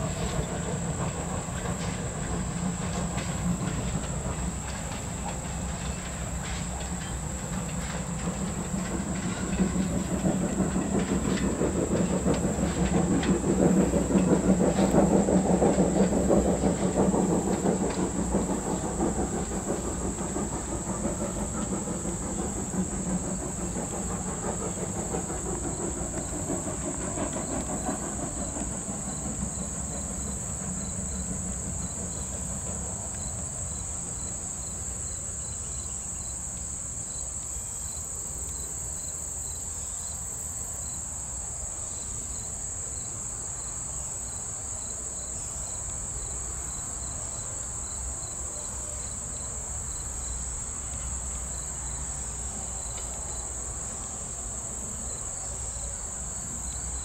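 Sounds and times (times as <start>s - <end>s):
insects trilling: 0.0s - 57.0s
train rumble: 0.0s - 57.0s.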